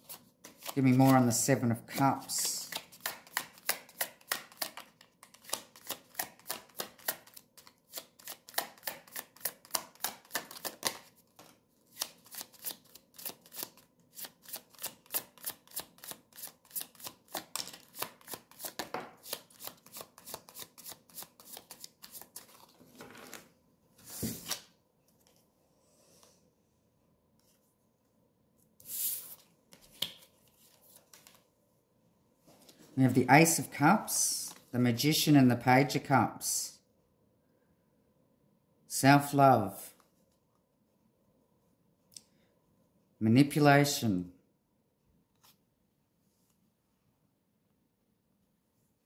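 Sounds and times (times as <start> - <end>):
cards being shuffled: 0.0 - 23.5, 28.8 - 31.4
cards swishing onto table: 24.0 - 24.7.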